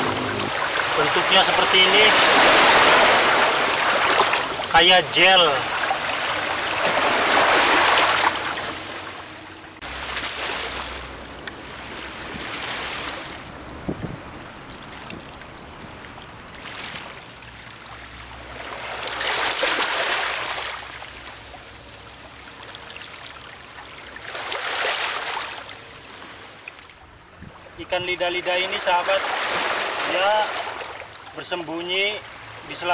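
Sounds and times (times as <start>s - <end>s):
sea waves washing over boulders: 0.0s - 9.1s.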